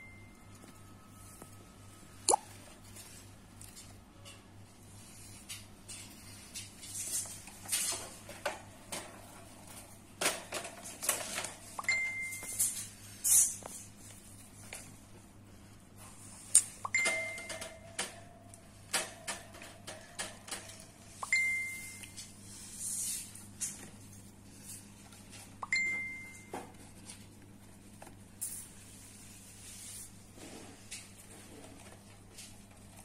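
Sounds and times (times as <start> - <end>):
cage clicks and rustles: 2.7 - 15.0, 16.5 - 21.4.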